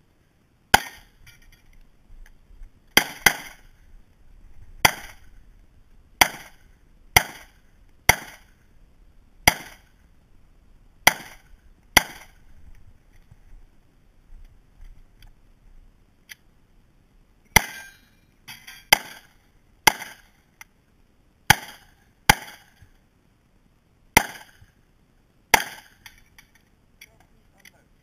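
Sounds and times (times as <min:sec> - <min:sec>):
pistol shots: 0:03.0 - 0:03.6, 0:07.2 - 0:08.4, 0:09.5 - 0:09.8.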